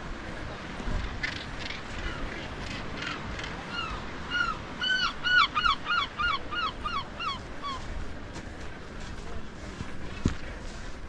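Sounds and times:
gull calling: 0:01.3 - 0:07.9.

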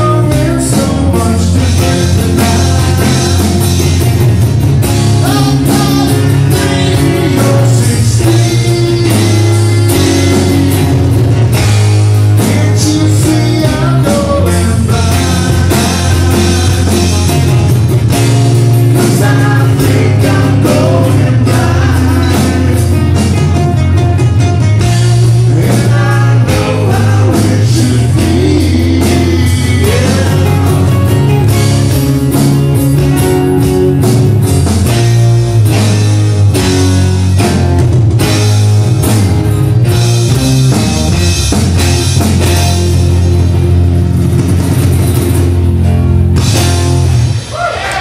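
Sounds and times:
acoustic rock band playing: 0:00.0 - 0:48.0.

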